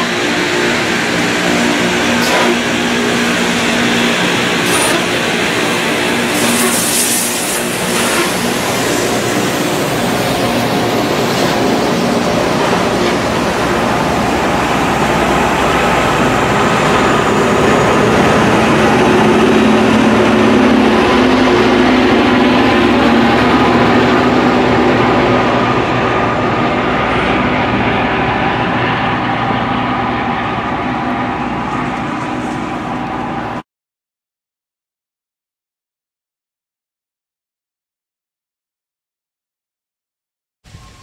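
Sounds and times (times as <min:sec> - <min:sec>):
grinding stones hissing on rail: 0:00.0 - 0:13.9
engines droning: 0:07.7 - 0:33.6.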